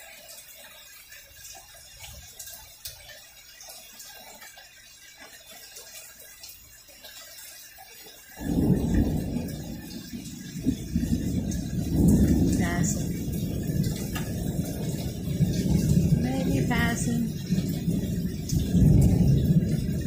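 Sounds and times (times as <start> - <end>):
rain falling: 0.0 - 20.0
scattered drips: 0.0 - 20.0
low rumble of thunder: 8.4 - 20.0.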